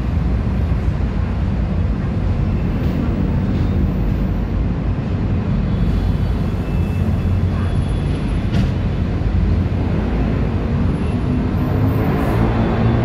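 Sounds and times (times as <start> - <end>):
bus engine rumbling: 0.0 - 13.0.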